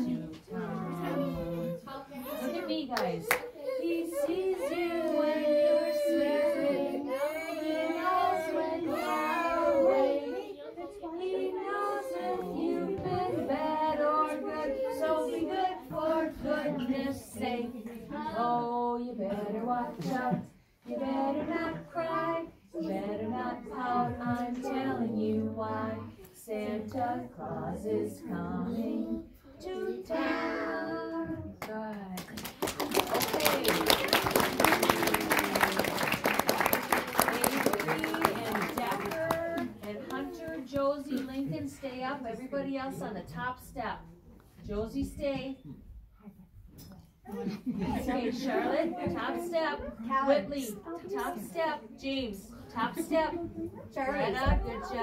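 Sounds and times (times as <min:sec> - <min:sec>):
toddlers singing together: 0:00.0 - 0:02.6, 0:03.3 - 0:31.6.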